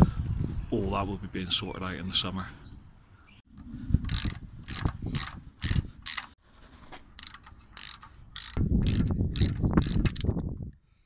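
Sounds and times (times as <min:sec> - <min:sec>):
ratchet wrench clicking: 0:04.1 - 0:06.4, 0:07.2 - 0:10.4.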